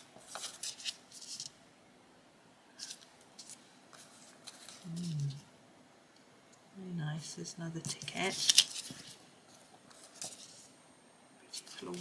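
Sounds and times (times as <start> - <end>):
plastic sheets crinkling: 0.2 - 1.6, 2.8 - 5.4, 7.8 - 10.8, 11.5 - 12.0.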